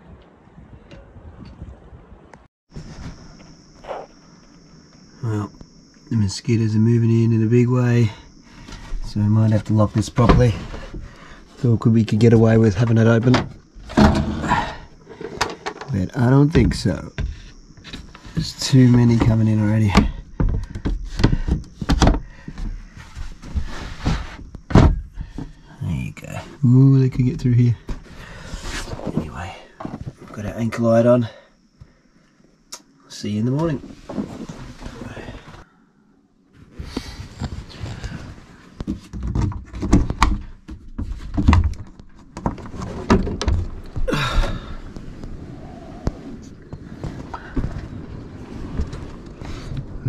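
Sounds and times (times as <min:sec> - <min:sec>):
hatch knocking and thumping: 0:12.4 - 0:18.3, 0:18.9 - 0:22.8, 0:23.4 - 0:25.6, 0:38.8 - 0:44.6.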